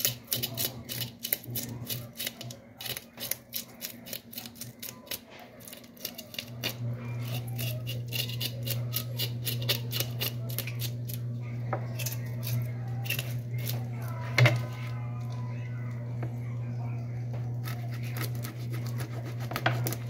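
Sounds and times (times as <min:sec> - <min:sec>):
knife scraping fish scales: 0:00.0 - 0:11.2, 0:11.9 - 0:14.8, 0:17.6 - 0:20.0
steady low hum: 0:05.3 - 0:20.0.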